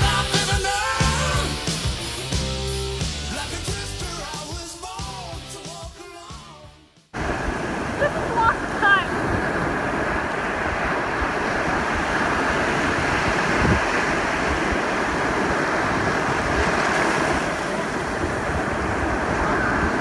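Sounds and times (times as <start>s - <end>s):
small waves washing up sand: 7.2s - 20.0s
wind buffeting microphone: 7.2s - 20.0s.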